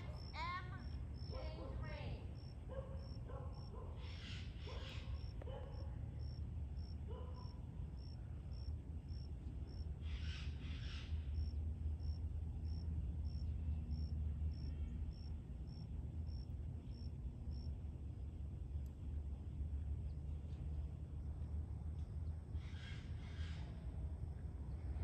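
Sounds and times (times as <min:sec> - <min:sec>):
insect chirping: 0:00.0 - 0:01.4, 0:02.3 - 0:17.8
low background rumble: 0:00.0 - 0:25.0.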